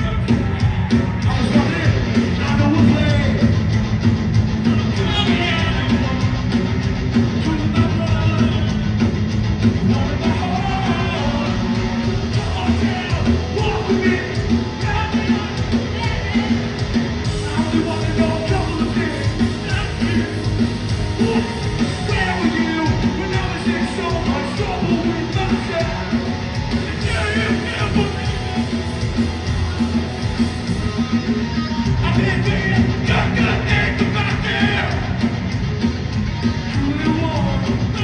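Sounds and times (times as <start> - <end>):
bass guitar: 0.0 - 38.0
drums: 0.0 - 38.0
electric guitars: 0.0 - 38.0
shouted vocals: 10.0 - 20.4, 31.9 - 35.3.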